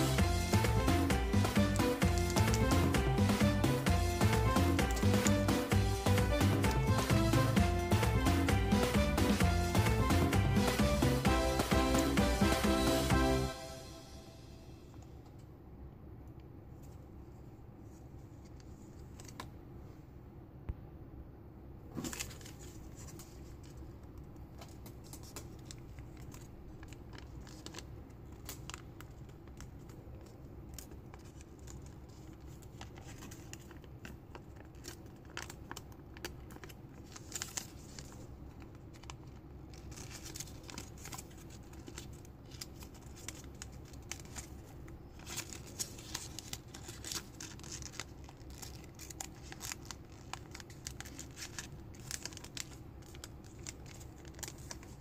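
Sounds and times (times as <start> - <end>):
paper crinkling and rustling: 17.8 - 19.6, 21.9 - 55.0.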